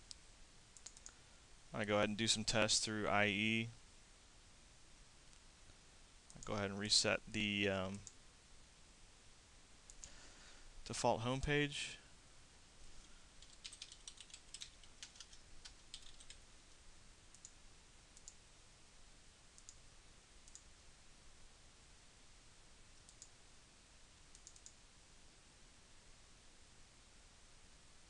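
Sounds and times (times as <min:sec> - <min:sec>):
mouse clicks: 0:00.8 - 0:01.2, 0:19.6 - 0:19.8, 0:20.4 - 0:20.7, 0:23.0 - 0:23.3, 0:24.3 - 0:24.8
computer keyboard typing: 0:13.4 - 0:16.4.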